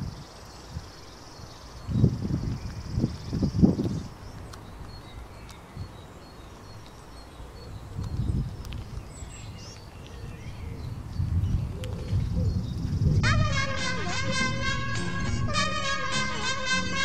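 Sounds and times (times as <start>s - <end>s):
small birds chirping: 0.0s - 13.2s.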